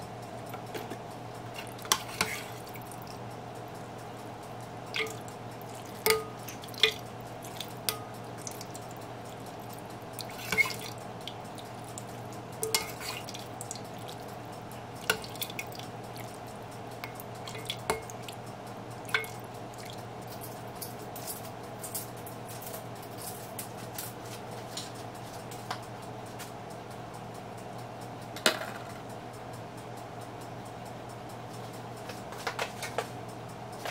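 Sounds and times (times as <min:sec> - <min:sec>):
steady low hum: 0:00.0 - 0:33.9
broth dripping and splashing: 0:04.9 - 0:14.3, 0:14.9 - 0:18.4, 0:19.0 - 0:20.1
ladle tapping bowl: 0:04.9 - 0:20.0.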